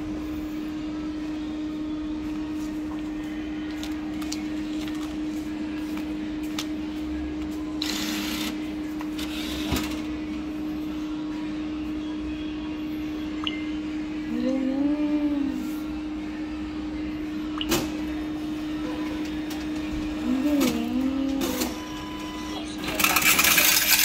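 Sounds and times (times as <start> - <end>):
steady electrical hum: 0.0 - 24.0
bill acceptor whirring: 7.7 - 10.1, 19.2 - 24.0.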